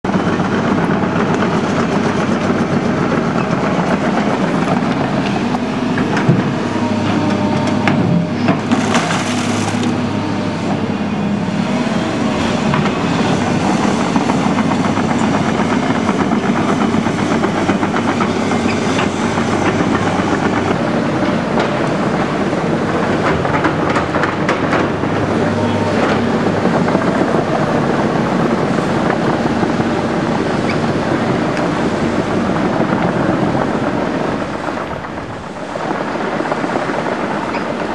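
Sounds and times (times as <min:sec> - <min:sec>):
diesel engines running: 0:00.0 - 0:37.9
excavator buckets clanking: 0:01.1 - 0:11.1.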